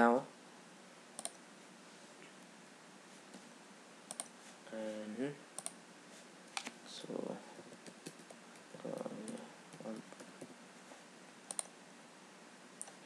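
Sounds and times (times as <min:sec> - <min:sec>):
mouse click: 0:01.2 - 0:01.4, 0:04.1 - 0:04.3, 0:05.6 - 0:05.8, 0:11.5 - 0:11.7
keyboard typing: 0:04.1 - 0:04.3, 0:07.7 - 0:10.5, 0:11.5 - 0:11.7.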